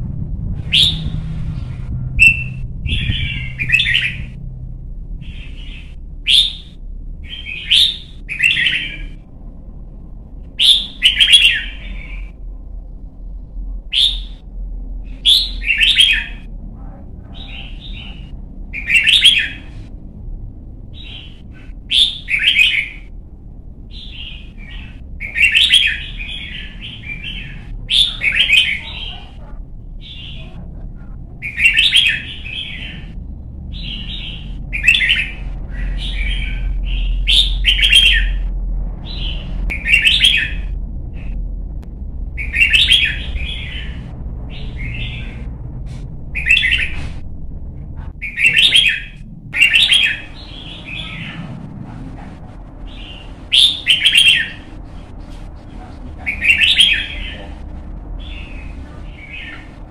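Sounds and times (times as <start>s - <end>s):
low background rumble: 0.0s - 59.9s
bulbul singing: 0.6s - 9.3s, 10.6s - 12.4s, 13.9s - 14.5s, 15.1s - 16.5s, 17.2s - 19.7s, 20.9s - 23.1s, 23.9s - 29.4s, 31.4s - 41.4s, 42.3s - 45.6s, 48.2s - 51.4s, 52.8s - 55.0s, 56.3s - 59.8s.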